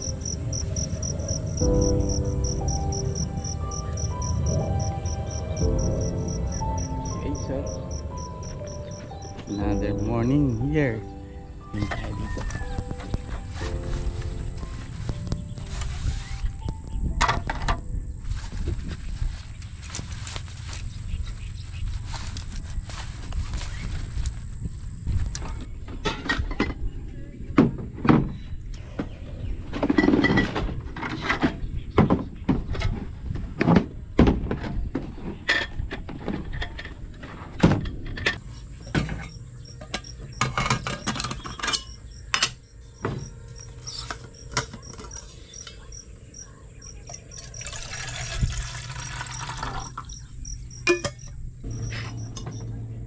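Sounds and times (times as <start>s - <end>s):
metal cookware clanking: 39.0s - 42.6s, 50.8s - 52.6s
water pouring into kettle: 47.4s - 50.0s.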